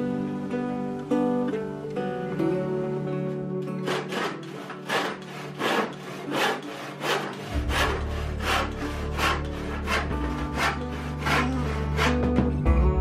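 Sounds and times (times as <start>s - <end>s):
background music: 0.0s - 13.0s
handsaw cutting wood: 3.8s - 12.5s.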